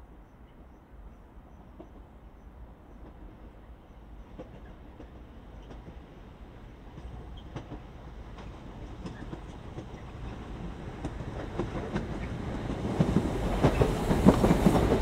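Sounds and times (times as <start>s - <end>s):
electric train approaching: 5.3s - 15.0s
train wheels clicking over track: 6.7s - 15.0s.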